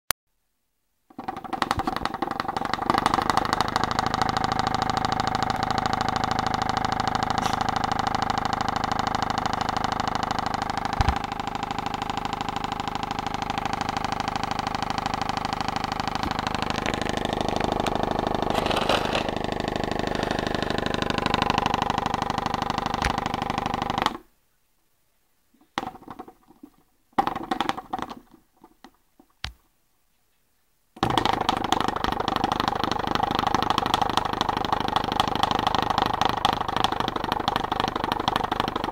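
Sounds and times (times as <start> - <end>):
engine rapid mechanical rattle: 1.1 - 24.2, 31.0 - 38.9.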